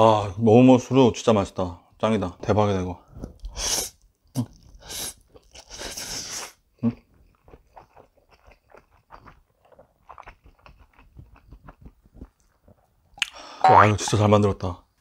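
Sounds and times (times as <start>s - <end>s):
chewing with mouth clicks: 4.4s - 6.2s, 6.8s - 13.4s.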